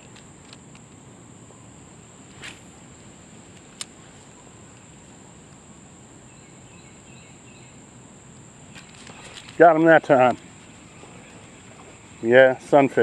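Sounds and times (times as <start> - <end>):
insect drone: 0.0 - 13.0
faint bird chirps: 6.2 - 7.9.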